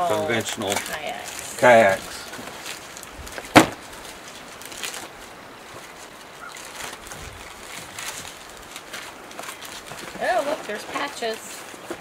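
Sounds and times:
faint rustling: 0.0 - 12.0
kayak hull slapping on deck: 3.4 - 3.9.

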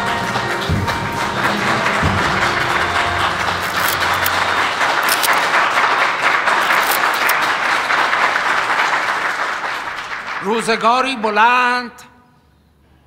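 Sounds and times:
crowd applauding: 0.0 - 10.8.

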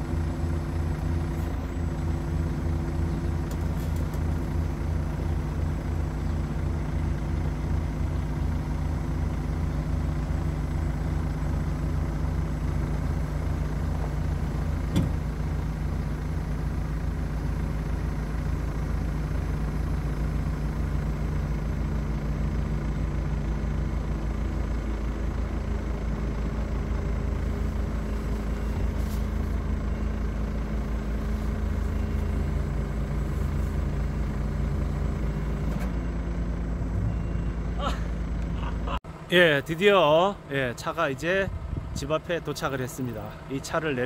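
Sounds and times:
diesel truck engine idling: 0.0 - 44.0.

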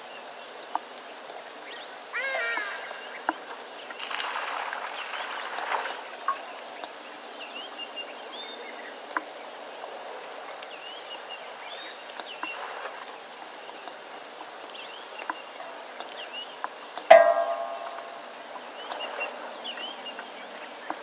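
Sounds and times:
birds chirping: 0.0 - 21.0
steady rain falling: 0.0 - 21.0
sharp drips: 2.4 - 7.0, 10.5 - 21.0.

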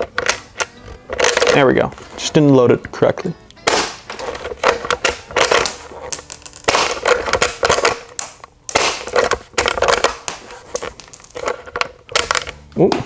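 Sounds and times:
airsoft rifle shots popping: 3.6 - 4.2.

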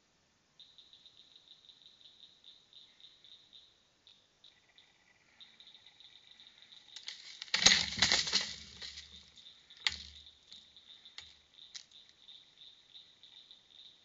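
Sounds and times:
crickets chirping: 0.3 - 14.0
bird feeder clattering: 7.0 - 10.2.

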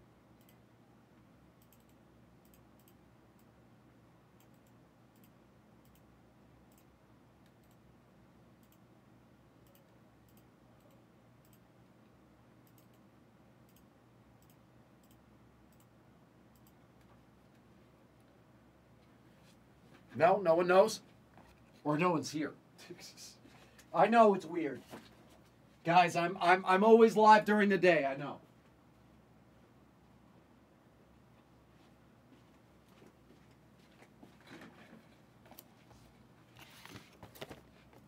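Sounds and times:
faint irregular clicking: 4.4 - 6.1.

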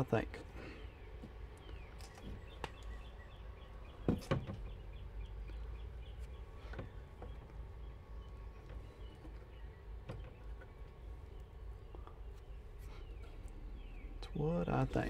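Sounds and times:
small bird chirping: 0.6 - 15.0
metal knocks and clicks on wood: 4.0 - 4.8.

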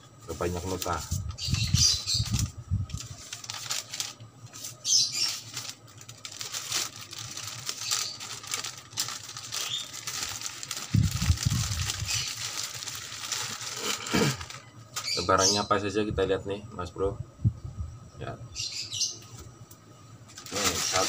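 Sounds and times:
paper rustling and crinkling: 0.3 - 15.2, 20.3 - 21.0.

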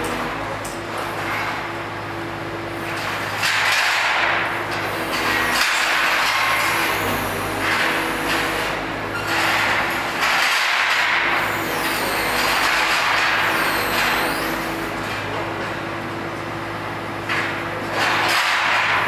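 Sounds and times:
hydraulic rushing noise: 4.8 - 15.3.

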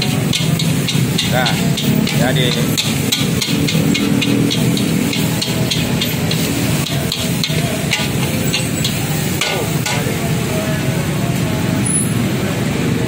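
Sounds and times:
metal spatula scraping a wok: 0.0 - 10.3.

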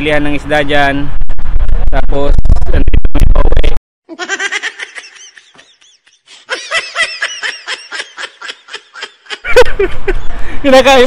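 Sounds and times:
person laughing: 4.1 - 10.4.

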